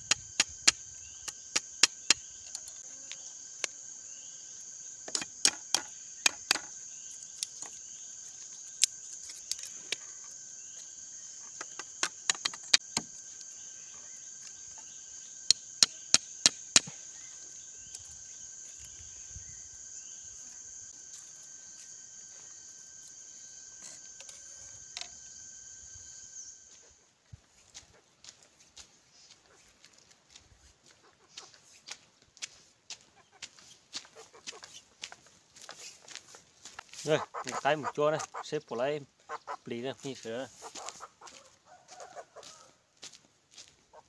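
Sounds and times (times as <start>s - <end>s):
machete cutting bamboo: 0.0s - 2.8s, 5.0s - 6.8s, 11.6s - 13.2s, 15.5s - 17.0s
insects chirring: 0.0s - 44.0s.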